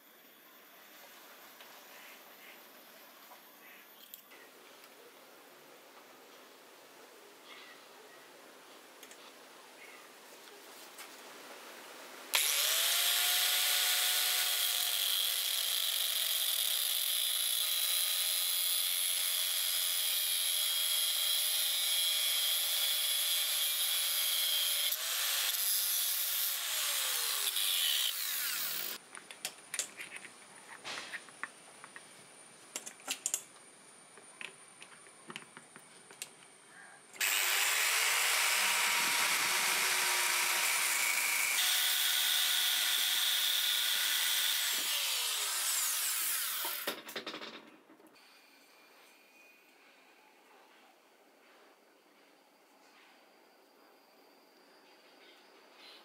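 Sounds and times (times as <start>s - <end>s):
angle grinder cutting metal: 12.4s - 29.0s, 37.2s - 46.9s.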